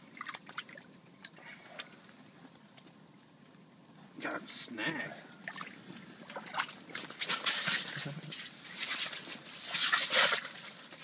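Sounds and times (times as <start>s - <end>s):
fish thrashing and splashing: 5.4s - 11.0s.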